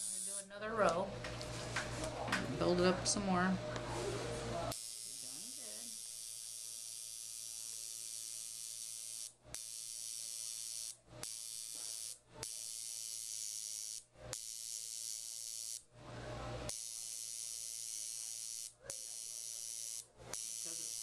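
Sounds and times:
tattoo machine buzzing: 0:00.0 - 0:00.5, 0:04.7 - 0:15.9, 0:16.7 - 0:21.0.

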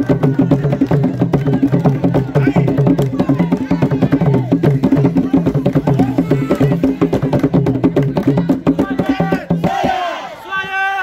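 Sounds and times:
fast hand drumming: 0:00.0 - 0:09.8
voices calling out: 0:00.0 - 0:11.0.

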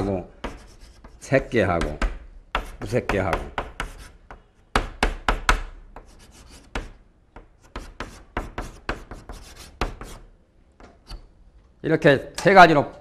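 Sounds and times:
chalk tapping and scratching: 0:00.0 - 0:10.3.

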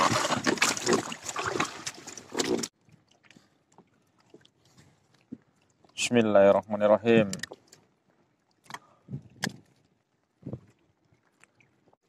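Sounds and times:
lake water splashing: 0:00.0 - 0:12.0.

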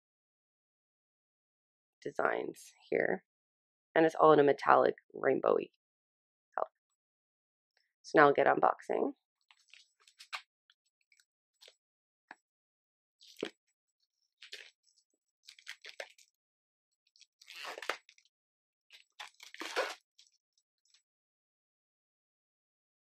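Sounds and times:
plastic shrink-wrap crinkling: 0:15.5 - 0:16.3.

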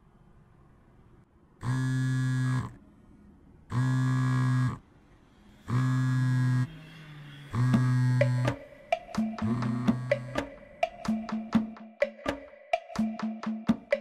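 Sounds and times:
phone buzzing on vibrate: 0:01.6 - 0:02.8, 0:03.7 - 0:04.8, 0:05.7 - 0:06.8, 0:07.5 - 0:10.4.

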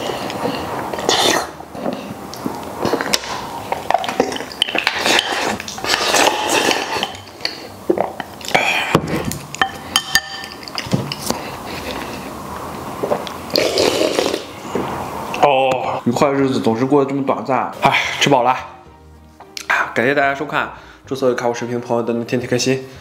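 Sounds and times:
slurping: 0:00.0 - 0:02.2, 0:02.8 - 0:09.0, 0:13.0 - 0:14.8
chewing: 0:00.0 - 0:08.6.

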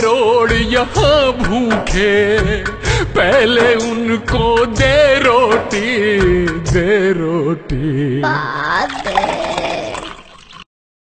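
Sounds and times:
backing music: 0:00.0 - 0:08.3
person singing: 0:00.0 - 0:10.3.

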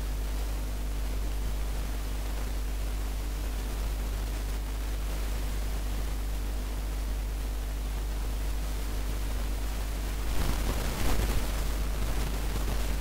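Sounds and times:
low electrical hum: 0:00.0 - 0:13.0
recording hiss: 0:00.0 - 0:13.0
rustling noise: 0:10.2 - 0:13.0.

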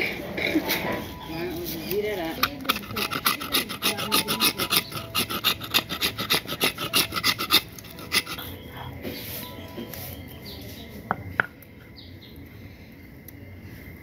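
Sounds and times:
stone grinding on stone slab: 0:00.0 - 0:08.5
blade scraping coconut husk: 0:00.0 - 0:08.6.

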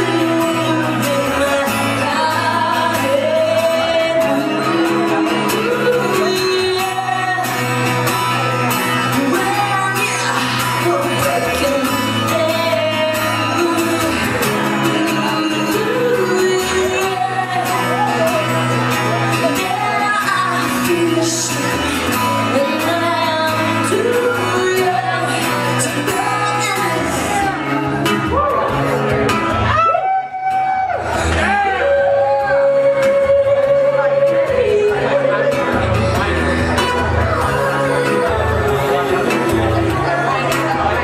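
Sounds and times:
woman singing: 0:00.0 - 0:28.3, 0:31.4 - 0:40.5
acoustic guitar strumming: 0:00.0 - 0:41.0.

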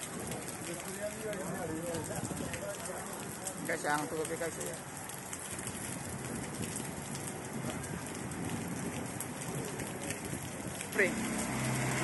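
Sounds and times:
sharp raindrop hits: 0:00.0 - 0:12.0
heavy rain hissing: 0:09.3 - 0:12.0.

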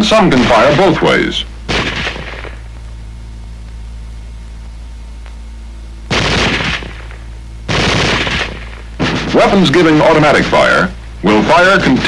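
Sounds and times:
low soundtrack hum: 0:00.0 - 0:12.0
automatic gunfire burst: 0:01.7 - 0:02.6, 0:06.1 - 0:09.7.

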